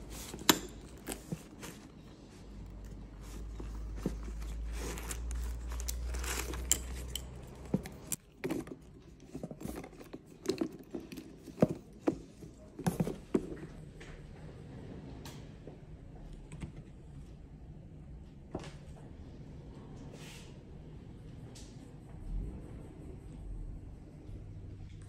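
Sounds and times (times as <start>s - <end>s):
tissue paper rustling: 0.0s - 6.7s.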